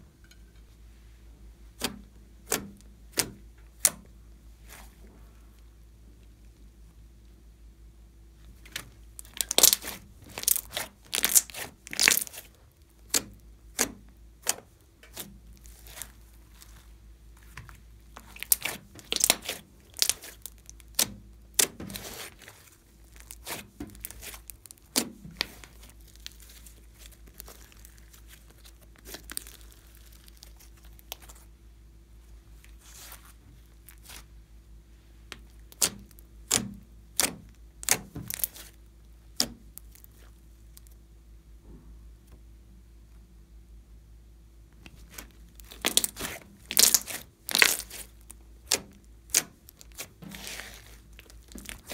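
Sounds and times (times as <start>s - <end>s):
slime popping and crackling: 9.2s - 16.8s, 17.5s - 31.5s, 35.3s - 40.9s, 44.9s - 51.9s.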